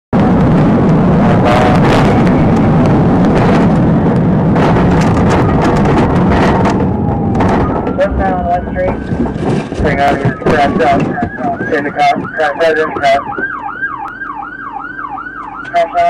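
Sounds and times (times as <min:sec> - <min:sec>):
car engine and tyre rush: 0:00.2 - 0:13.8
knocks and rattles: 0:01.4 - 0:13.7.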